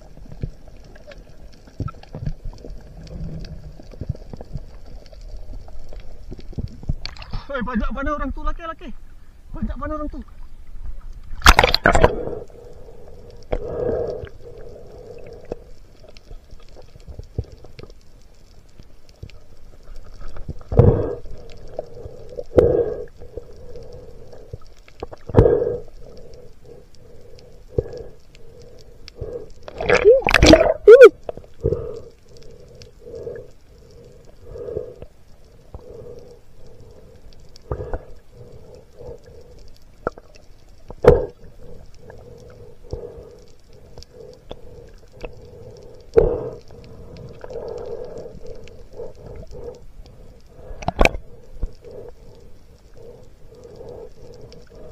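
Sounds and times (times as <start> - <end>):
muffled underwater rushing: 10.3 - 12.4, 25.3 - 34.9.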